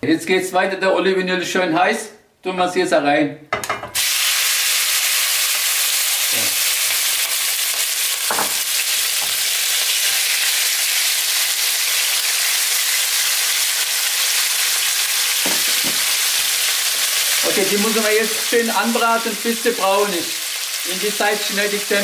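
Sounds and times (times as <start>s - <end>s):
chicken sizzling in oil: 4.0s - 22.0s
spatula knocking in pan: 15.4s - 16.2s.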